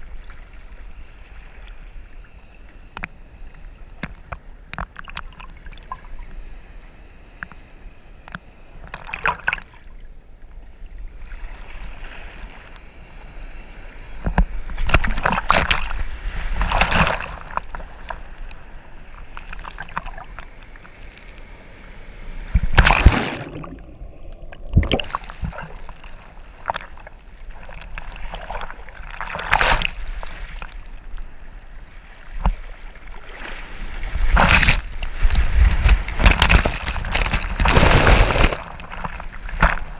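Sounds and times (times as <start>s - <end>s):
ocean surf splashing: 11.4s - 30.9s, 31.8s - 39.9s.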